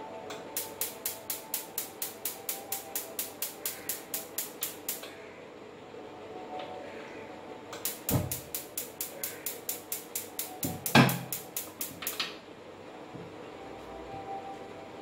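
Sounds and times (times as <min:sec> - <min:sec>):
stove igniter clicking: 0:00.6 - 0:05.1, 0:07.8 - 0:12.4.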